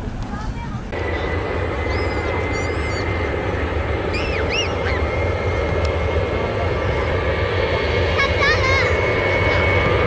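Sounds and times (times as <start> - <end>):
aircraft engine rumble: 0.0 - 10.0
high engine whine: 0.0 - 10.0
bird chirps: 1.8 - 3.2, 4.1 - 5.1.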